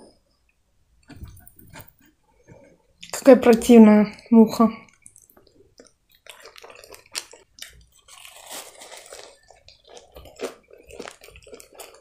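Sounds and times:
chewing crunchy food: 4.8 - 12.0.

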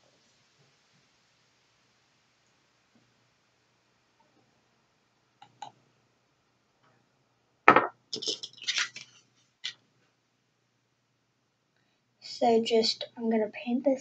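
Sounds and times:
bottle knocking on stone countertop: 7.7 - 8.0.

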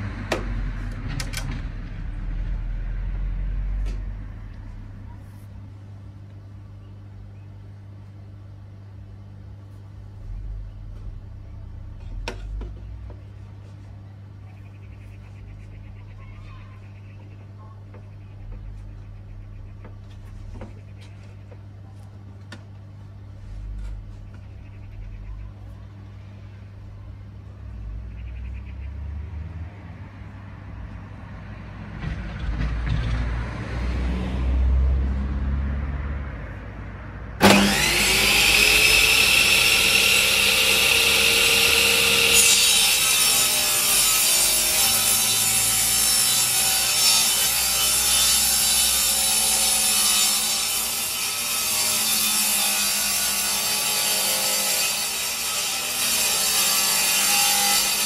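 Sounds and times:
table saw motor whining: 37.4 - 50.1
saw blade ripping wooden board: 37.4 - 58.0.

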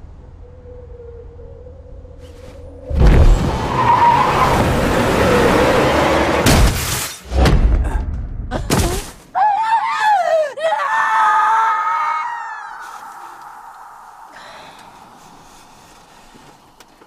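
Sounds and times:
wavering high-pitched cry: 9.5 - 15.2.

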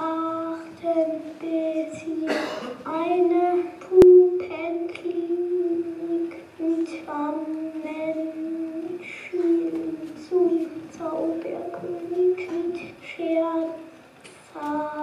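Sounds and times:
person singing long notes: 2.9 - 13.8.

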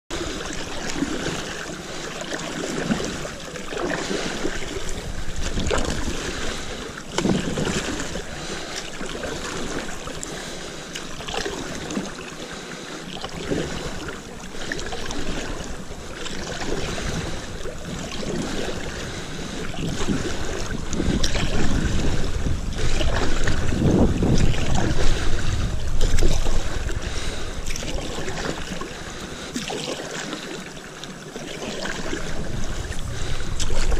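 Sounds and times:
paddle strokes splashing: 0.1 - 33.9
water running along board: 0.1 - 33.9
wind buffeting microphone: 2.7 - 10.2, 13.3 - 29.6, 31.8 - 33.9.

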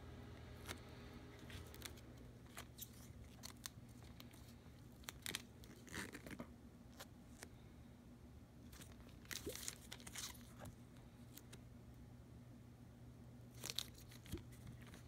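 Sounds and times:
plastic film crinkling: 1.4 - 7.0, 8.7 - 10.7, 13.5 - 15.0.

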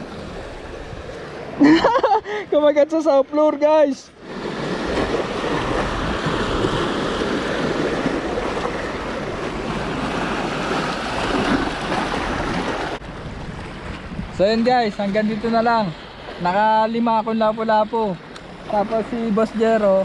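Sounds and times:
waves splashing over boulders: 0.0 - 20.0
wind buffeting microphone: 4.2 - 16.5.

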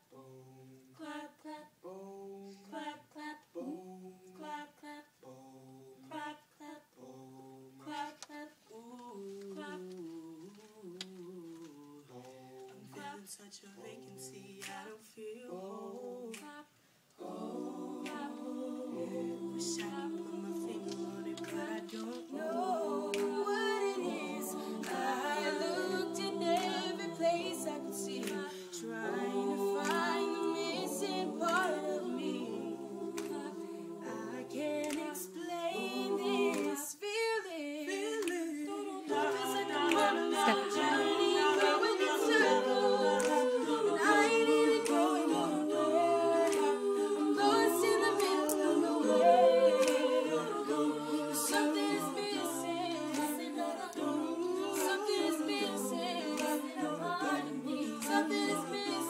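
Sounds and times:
a cappella group singing: 0.0 - 59.0
lead voice singing: 17.2 - 59.0.

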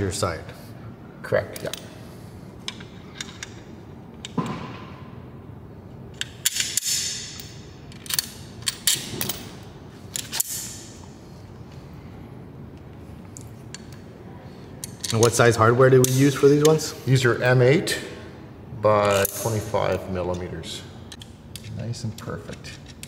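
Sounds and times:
metal bolts and washers clinking: 1.5 - 2.0, 2.6 - 4.6, 6.1 - 11.1, 14.8 - 16.8.

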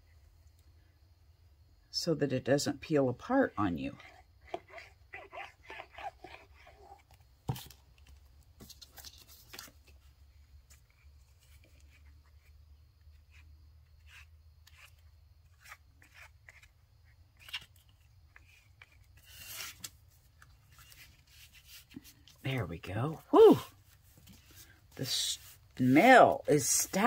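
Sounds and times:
card scraping glue on paper: 14.0 - 16.7.

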